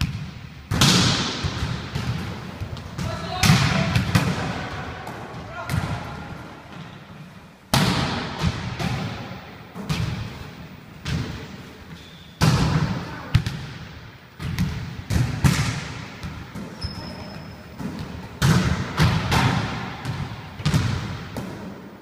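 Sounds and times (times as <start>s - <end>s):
volleyballs smacking and bouncing: 0.0s - 22.0s
high squeak: 16.8s - 17.8s.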